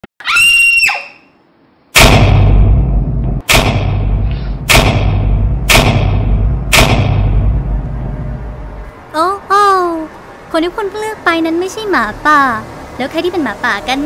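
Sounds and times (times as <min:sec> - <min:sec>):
heavy cinematic boom hits: 0:01.9 - 0:09.0
low rumble: 0:02.0 - 0:09.1.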